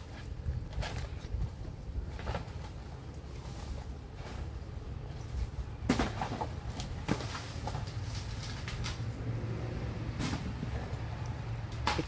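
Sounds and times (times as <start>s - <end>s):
steady low rumble: 6.5s - 12.0s.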